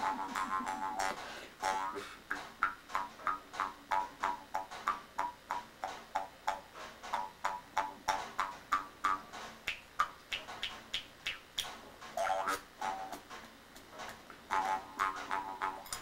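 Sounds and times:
mouth harp twangs: 0.0s - 11.6s.

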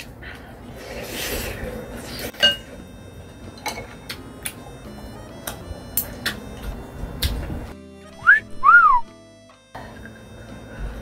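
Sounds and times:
person slurping noodles: 0.6s - 2.3s.

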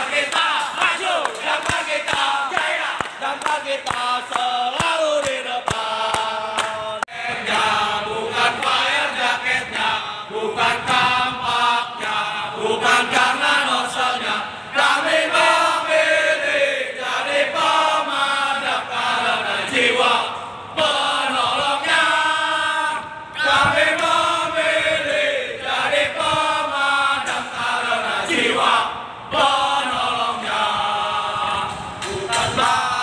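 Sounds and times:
sharp hand claps: 0.0s - 7.1s
men chanting in unison: 0.0s - 33.0s.

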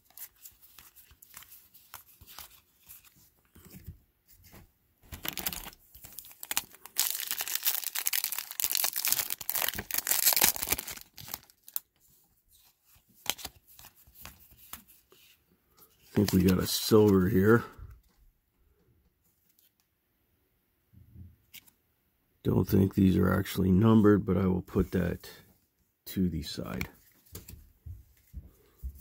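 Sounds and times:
foil wrapper tearing and crinkling: 5.1s - 11.9s.

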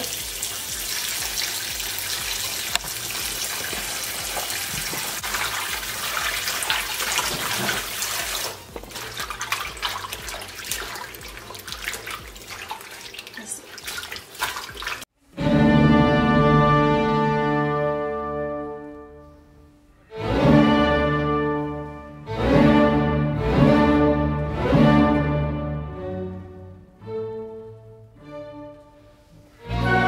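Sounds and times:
tap running into metal bowl: 0.4s - 13.0s
hands splashing in water: 1.2s - 15.0s.

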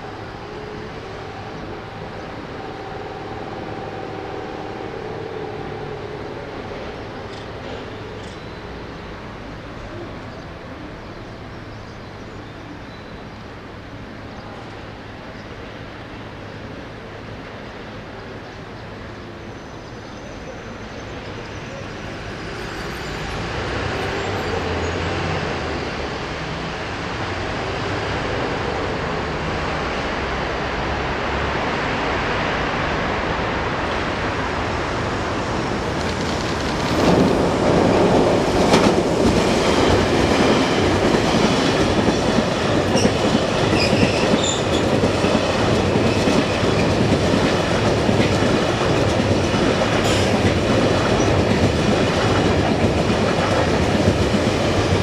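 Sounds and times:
freight train passing: 0.0s - 55.0s
wheels clattering on rail: 35.5s - 55.0s.

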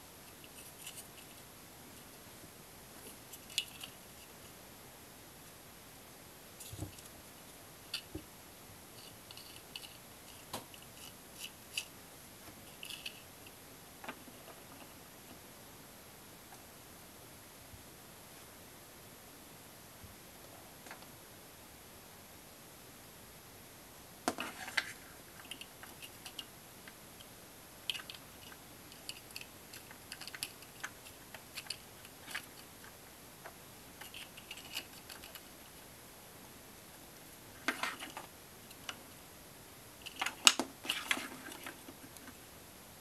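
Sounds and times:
plastic parts clicking and rattling: 9.0s - 11.9s, 12.7s - 13.2s, 27.9s - 35.6s, 37.6s - 39.0s, 40.0s - 42.4s.

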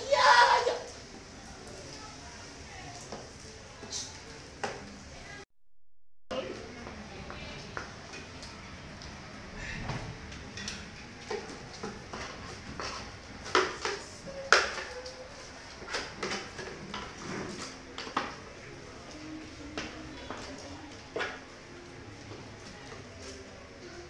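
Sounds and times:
utensils and metal pots clinking: 10.3s - 18.4s.

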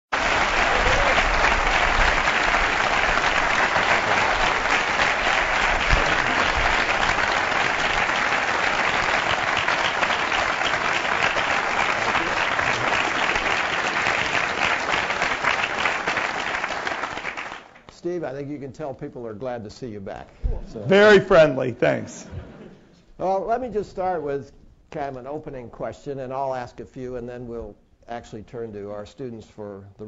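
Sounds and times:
large audience applauding: 0.0s - 17.9s.

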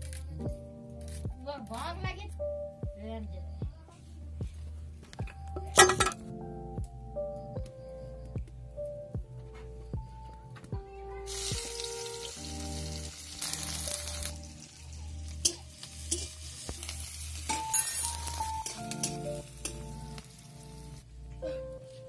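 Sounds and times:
onions sizzling in hot oil: 11.3s - 21.0s
metal spatula scraping pan: 15.4s - 16.6s.

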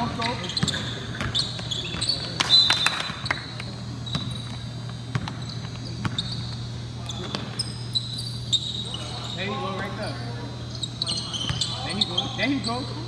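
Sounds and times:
basketball bouncing on wooden floor: 0.0s - 2.1s, 4.0s - 6.6s
sneaker squeaks: 0.0s - 13.0s
steady low hum: 0.0s - 13.0s.

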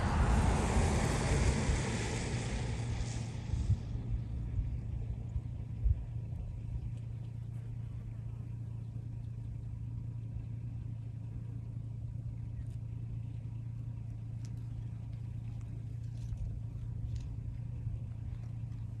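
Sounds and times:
car engine and road drone: 0.0s - 19.0s
faint ticks: 14.3s - 18.9s.

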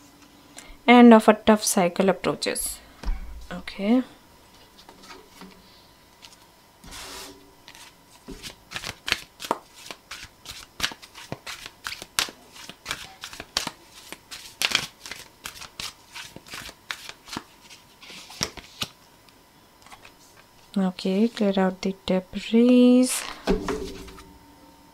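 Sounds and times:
cards being shuffled: 6.2s - 19.0s.

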